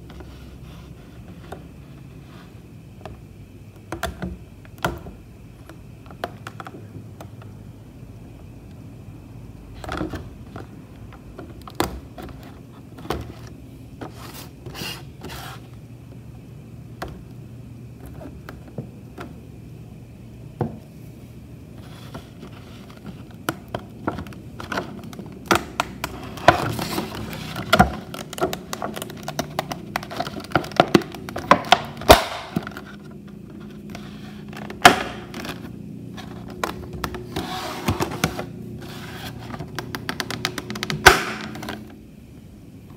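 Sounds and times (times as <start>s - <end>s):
plastic packaging crackling: 21.8s - 38.3s.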